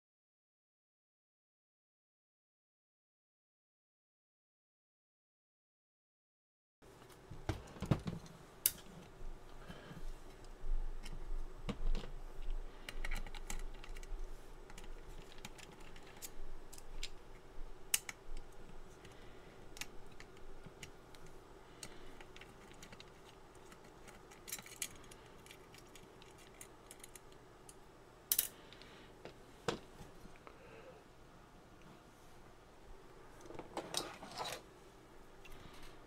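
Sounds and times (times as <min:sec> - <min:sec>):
faint steady hum: 0:06.8 - 0:36.0
wires and connector clicking: 0:10.3 - 0:28.4.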